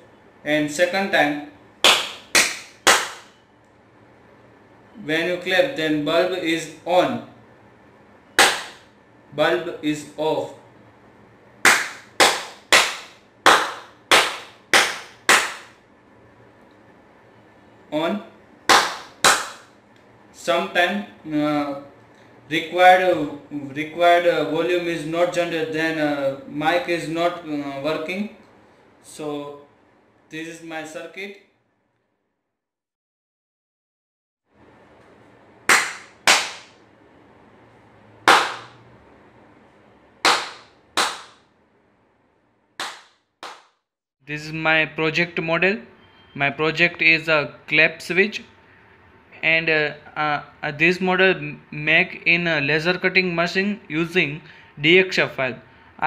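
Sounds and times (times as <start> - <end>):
sharp hand claps: 1.8 - 3.3, 8.4 - 8.9, 11.6 - 15.8, 18.7 - 19.8, 35.7 - 36.8, 38.2 - 38.8, 40.2 - 41.4, 42.8 - 43.8.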